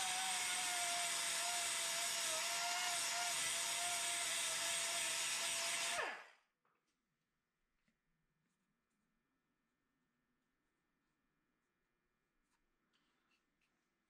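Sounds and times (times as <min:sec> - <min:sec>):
pneumatic die grinder whining: 0:00.0 - 0:06.4.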